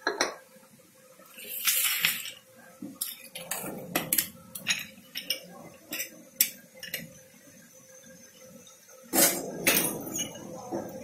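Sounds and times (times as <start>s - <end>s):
bowls and spoon clinking: 0.0s - 0.4s, 1.4s - 2.4s, 3.0s - 7.2s, 9.2s - 11.0s.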